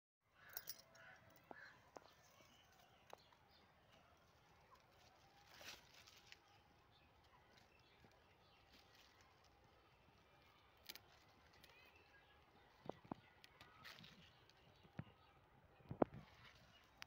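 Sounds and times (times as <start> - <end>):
rustle of leaves: 3.9 - 14.8.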